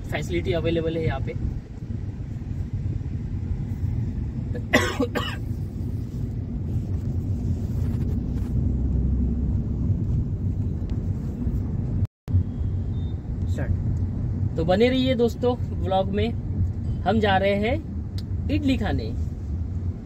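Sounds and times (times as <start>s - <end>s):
car cabin road rumble: 0.0s - 20.0s
person coughing: 4.5s - 5.6s.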